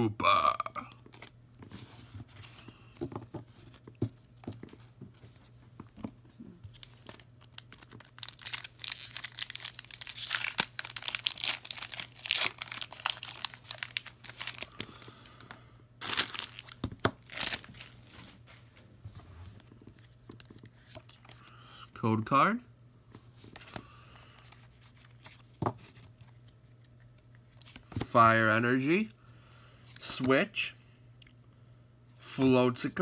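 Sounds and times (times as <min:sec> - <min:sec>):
card handling rustles and taps: 0:01.0 - 0:08.6, 0:24.5 - 0:28.2
foil wrapper tearing and crinkling: 0:06.7 - 0:15.1, 0:16.0 - 0:18.0.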